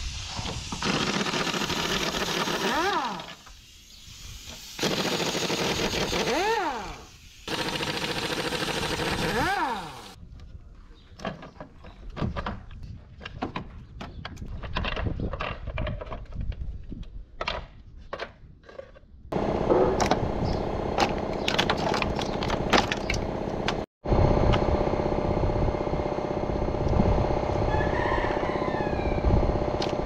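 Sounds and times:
pneumatic tool running: 0.0 - 10.2.

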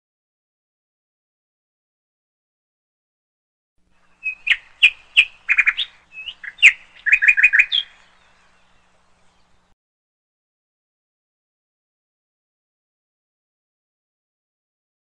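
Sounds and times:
bird chirping: 4.0 - 9.8.

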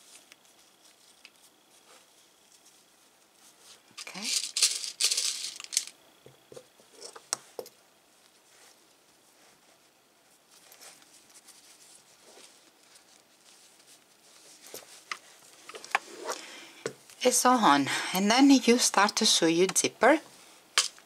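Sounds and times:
fabric rustling: 0.0 - 5.8, 6.5 - 16.6.

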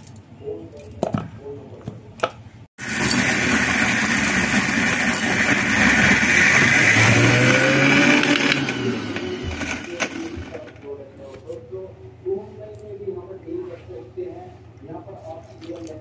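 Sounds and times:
mixer grinder running: 2.8 - 10.8.

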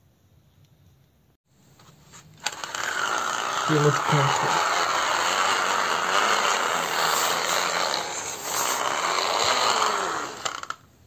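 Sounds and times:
toy car motor whirring: 2.3 - 10.9.

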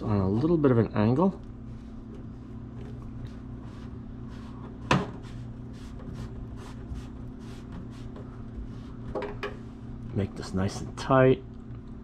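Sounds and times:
steady low hum: 0.0 - 12.0
soft brushing: 1.6 - 9.8.

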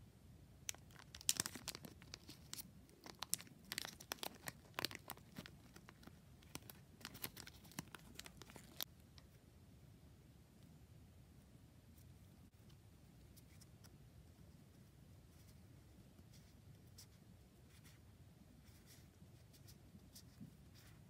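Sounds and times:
paper packaging crinkling: 0.7 - 8.9.

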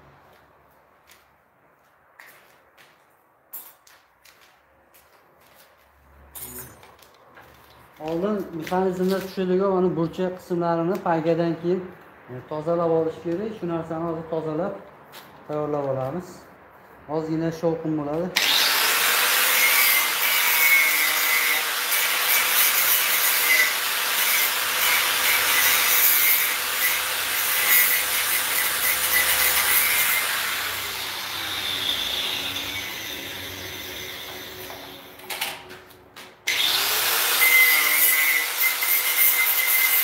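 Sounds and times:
electric grinder grinding: 18.4 - 35.1, 36.5 - 40.0.

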